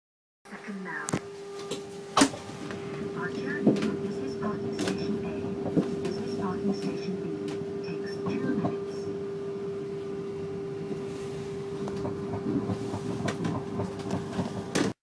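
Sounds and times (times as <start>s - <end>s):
electric pod car whine and rumble: 0.8s - 15.0s.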